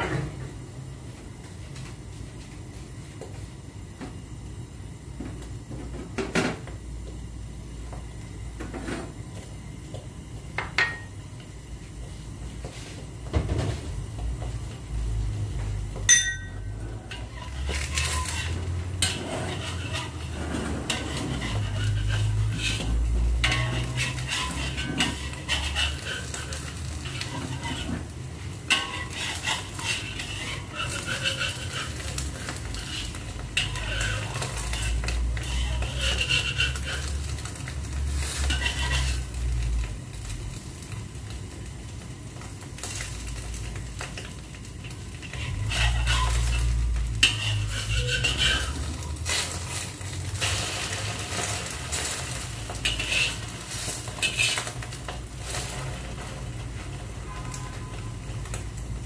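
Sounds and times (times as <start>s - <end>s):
egg sizzling: 14.4s - 59.0s
metal spatula scraping a wok: 15.0s - 40.2s, 42.8s - 59.0s.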